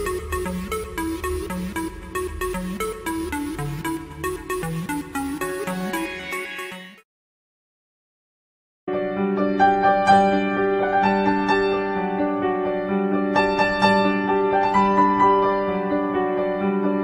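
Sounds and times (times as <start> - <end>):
instrumental background music: 0.0 - 7.0.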